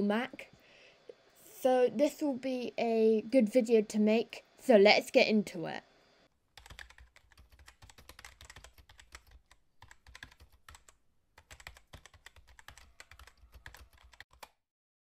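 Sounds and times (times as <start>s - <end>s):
computer keyboard typing: 6.6s - 14.6s.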